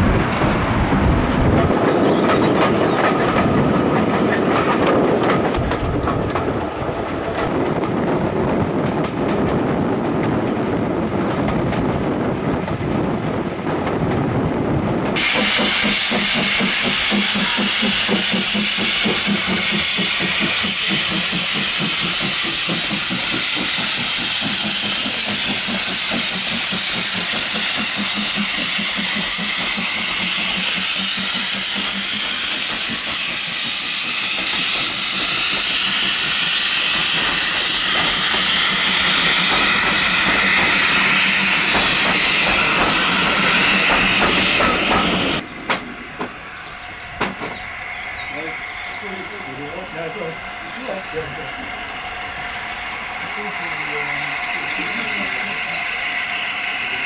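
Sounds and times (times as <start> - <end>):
steam locomotive hissing steam: 15.2 - 45.4, 47.8 - 57.0.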